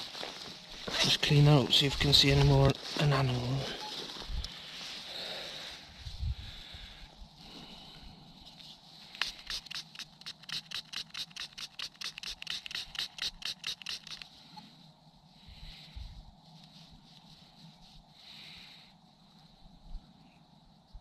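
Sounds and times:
brush scrubbing metal brooch: 0:09.2 - 0:14.2.

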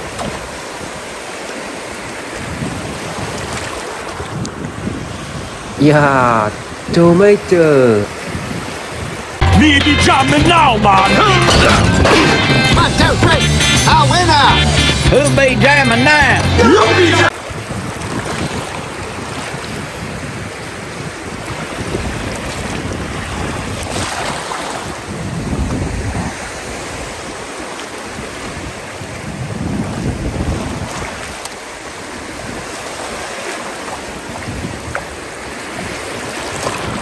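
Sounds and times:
surf washing over sand: 0:00.0 - 0:09.4, 0:16.1 - 0:37.0
wind buffeting microphone: 0:02.3 - 0:05.8, 0:08.1 - 0:09.4, 0:17.4 - 0:33.2, 0:34.0 - 0:37.0.

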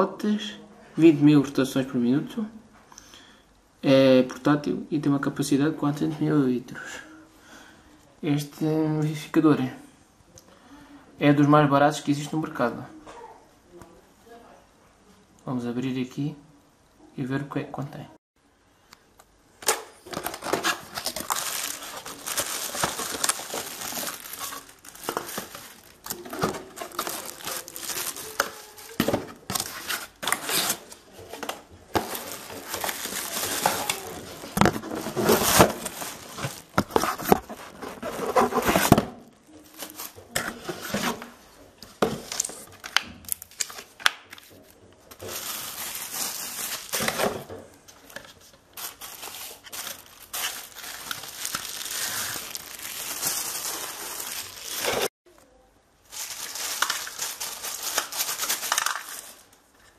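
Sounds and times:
cardboard rustling and scraping: 0:20.0 - 0:42.9
plastic bags crinkling: 0:20.0 - 0:55.1, 0:56.0 - 0:59.7.

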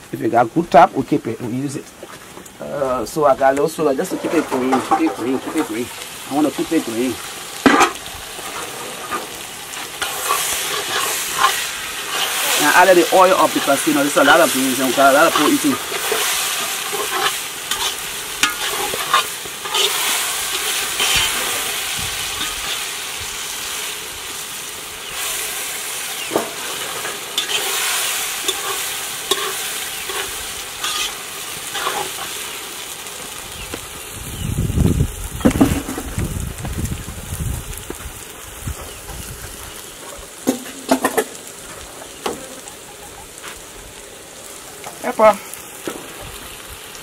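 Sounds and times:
oil sizzling: 0:00.0 - 0:47.0
metal spoon scraping pot: 0:14.9 - 0:21.5, 0:28.4 - 0:31.2.

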